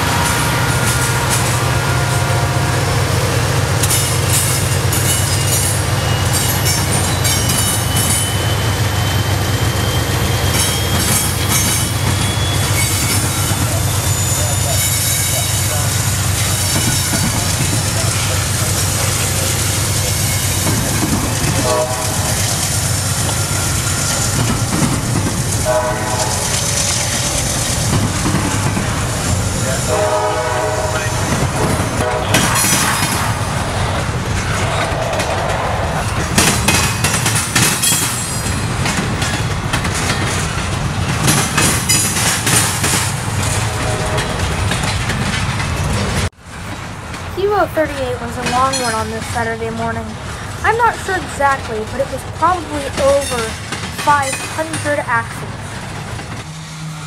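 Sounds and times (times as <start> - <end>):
locomotive horn blasts: 0.0 - 3.2, 21.6 - 22.6, 25.6 - 27.1, 29.8 - 32.6, 43.4 - 44.5
freight train rumble: 0.0 - 57.0
wheels clacking over rail joints: 0.0 - 57.0
wheel squeal: 5.0 - 17.4.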